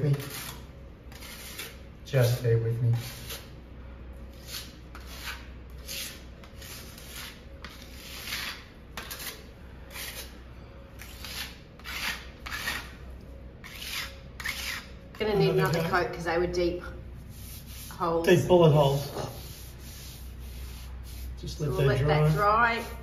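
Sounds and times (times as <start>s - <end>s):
putty knife scraping wall: 0.0s - 3.5s, 4.3s - 10.3s, 11.0s - 13.0s, 13.6s - 15.9s.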